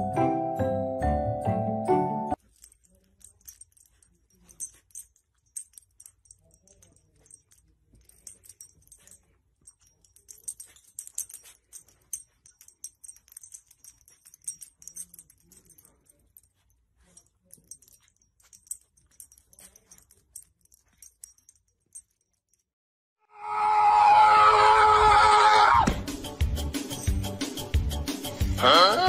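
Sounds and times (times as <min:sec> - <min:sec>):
collar tags clinking: 0:02.4 - 0:22.7, 0:26.2 - 0:28.9.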